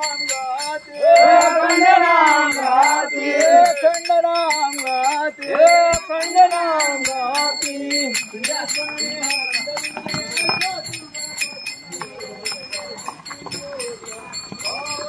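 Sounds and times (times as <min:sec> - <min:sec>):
person singing devotional song: 0:00.0 - 0:11.2
hand cymbals jingling: 0:00.0 - 0:15.0.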